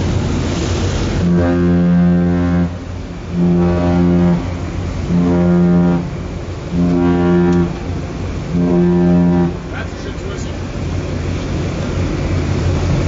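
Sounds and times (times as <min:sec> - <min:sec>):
ship's horn short low blasts: 0:01.0 - 0:10.6.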